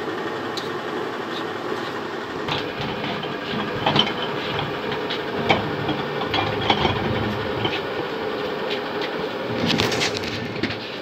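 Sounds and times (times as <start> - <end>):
machine hum: 0.0 - 11.0
metal tub clanking: 2.4 - 8.1
metal tool scraping beater: 2.5 - 8.1.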